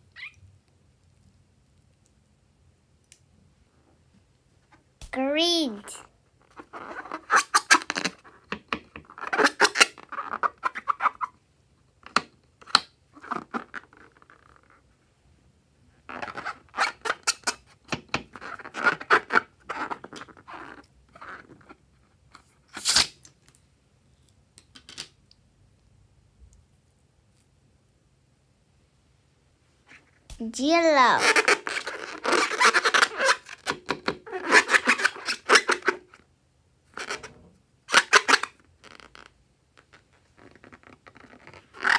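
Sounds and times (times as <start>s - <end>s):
rubber squeaking and rustling: 6.4s - 11.4s, 16.0s - 23.1s, 29.9s - 36.2s, 36.9s - 41.9s
balloon torn open: 9.1s - 11.0s, 22.7s - 23.3s, 31.2s - 36.1s, 37.9s - 41.9s.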